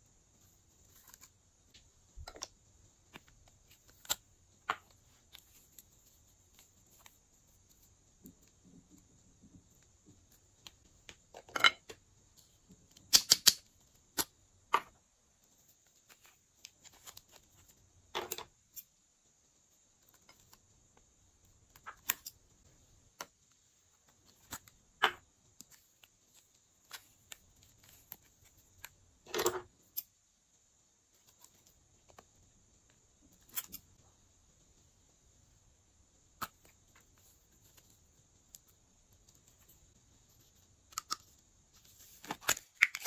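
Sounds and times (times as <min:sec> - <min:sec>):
plastic tubes clicking: 0:13.0 - 0:14.3.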